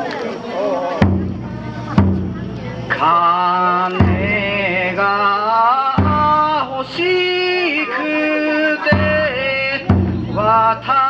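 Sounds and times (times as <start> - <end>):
taiko drum strokes: 1.0 - 5.2, 5.9 - 7.3, 8.9 - 11.0.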